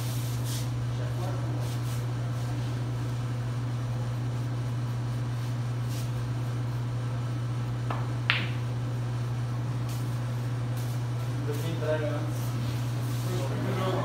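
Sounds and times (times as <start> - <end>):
low electrical hum: 0.0 - 14.0
cue tip striking ball: 7.8 - 8.8
billiard balls clicking: 7.9 - 8.7.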